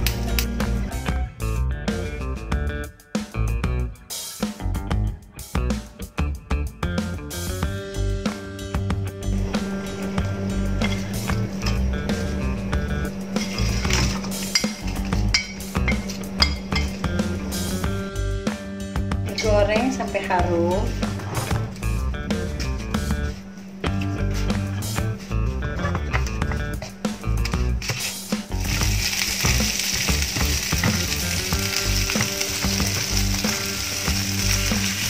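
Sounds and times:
background music with steady beat: 0:00.0 - 0:35.0
wooden spatula scraping pan: 0:27.4 - 0:28.5
paste sizzling in hot oil: 0:27.8 - 0:35.0.

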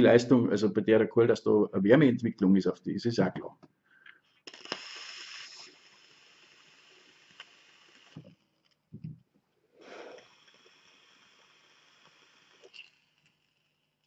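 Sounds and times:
vape air hiss: 0:04.3 - 0:08.6, 0:09.7 - 0:14.0.

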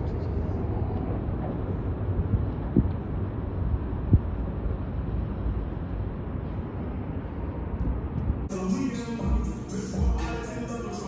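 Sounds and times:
wind buffeting microphone: 0:00.0 - 0:08.5.

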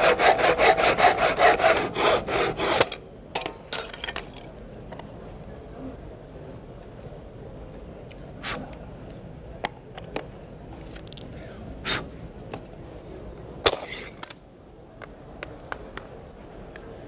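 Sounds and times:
short scrape: 0:13.7 - 0:14.2.

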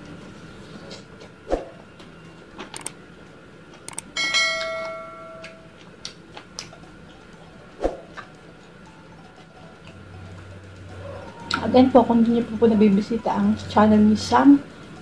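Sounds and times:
quick clicks: 0:02.6 - 0:03.0, 0:03.8 - 0:04.1
bright multi-toned bell chime: 0:04.2 - 0:05.6
clicks of eating by hand: 0:05.4 - 0:06.8.

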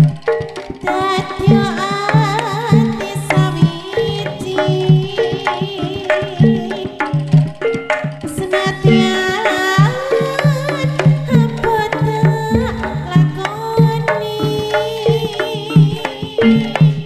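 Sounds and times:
hand drum beat: 0:00.0 - 0:17.0
woman singing: 0:00.8 - 0:07.3, 0:08.3 - 0:17.0
gamelan ensemble playing: 0:12.4 - 0:14.4
small gongs ringing: 0:12.5 - 0:14.5.

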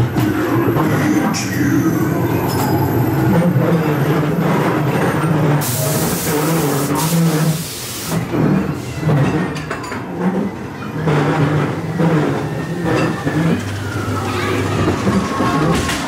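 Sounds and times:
ride car rumbling along track: 0:00.0 - 0:16.0
loud hiss: 0:05.6 - 0:08.2.

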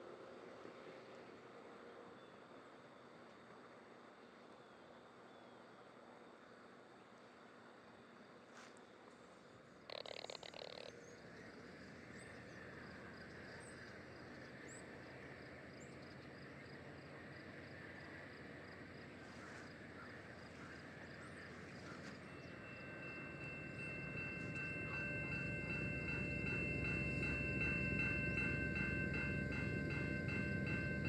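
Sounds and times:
distant diesel locomotive rumbling: 0:09.2 - 0:31.0
faint bird chirps: 0:09.9 - 0:16.9
locomotive bell ringing: 0:21.2 - 0:31.0.

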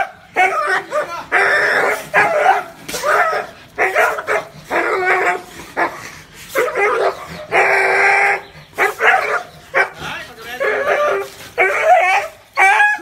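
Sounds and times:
dog barking: 0:00.0 - 0:06.0, 0:08.8 - 0:10.0.

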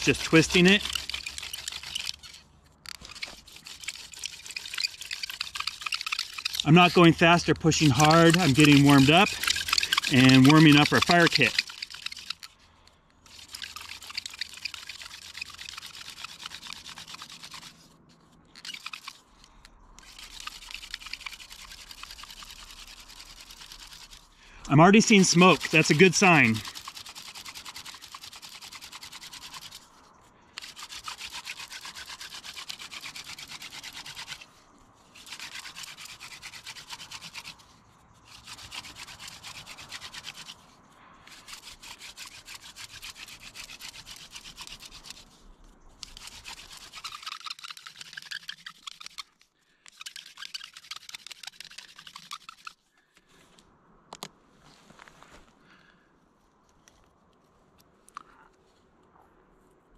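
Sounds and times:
wood-on-wood rubbing: 0:00.0 - 0:12.5, 0:13.3 - 0:17.8, 0:18.6 - 0:19.2, 0:20.0 - 0:29.8, 0:30.6 - 0:34.4, 0:35.2 - 0:37.6, 0:38.3 - 0:40.6, 0:41.3 - 0:45.3, 0:46.0 - 0:52.8.

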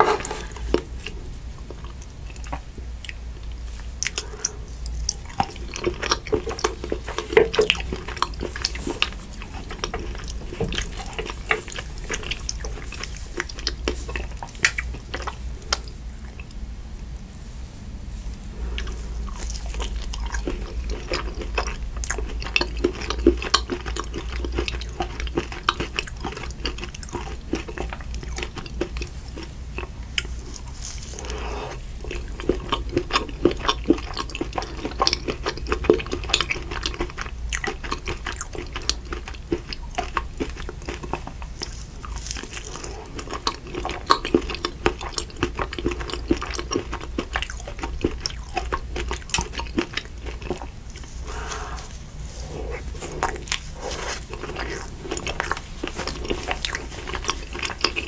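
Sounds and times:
low constant hum: 0:00.0 - 0:58.0
chewing mouth clicks: 0:00.2 - 0:16.6, 0:18.7 - 0:58.0.

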